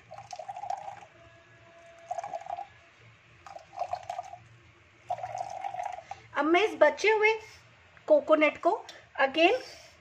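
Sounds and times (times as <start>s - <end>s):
milk dripping into bowl: 0.0s - 1.2s, 1.9s - 2.7s, 3.4s - 6.3s.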